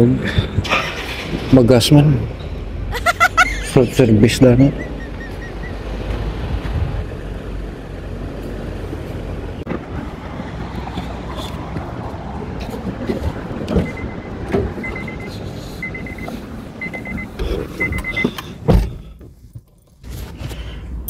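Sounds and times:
wind noise: 3.8 - 7.5
car door opening and shutting: 12.7 - 20.5
car door thump: 18.6 - 19.1.

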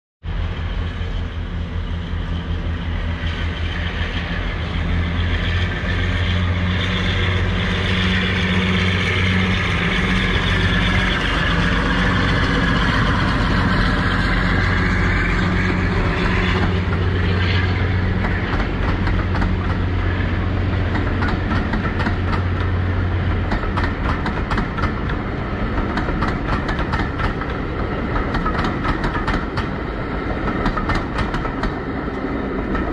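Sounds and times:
diesel locomotive engine whine: 0.2 - 32.9
train wheels clattering over rail joints: 10.7 - 32.9.

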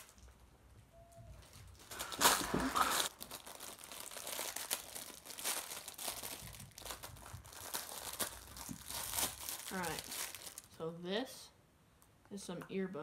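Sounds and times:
packaging crinkling and tearing: 1.4 - 10.8.

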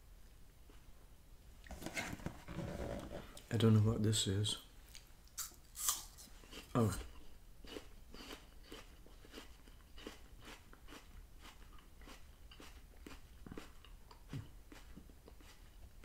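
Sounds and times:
chewing apple crunches: 4.9 - 16.0.

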